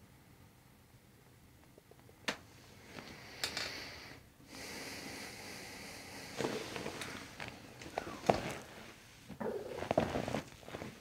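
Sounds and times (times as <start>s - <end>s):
person breathing through nose: 3.1s - 7.0s
soft clicks and rustles: 6.4s - 11.0s.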